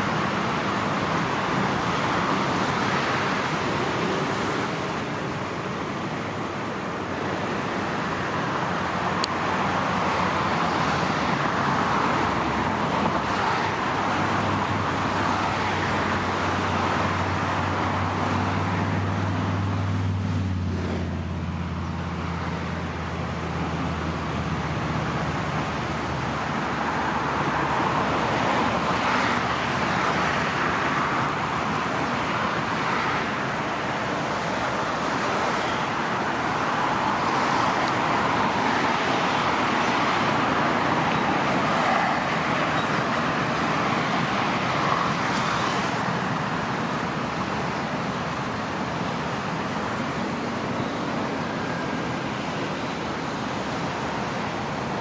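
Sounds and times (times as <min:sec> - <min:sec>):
road traffic noise: 0:00.0 - 0:55.0.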